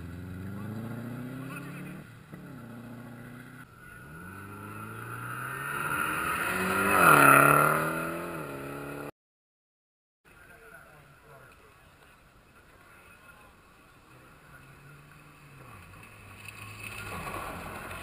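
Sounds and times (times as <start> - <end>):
rally car engine shifting gears: 0.0 - 9.1.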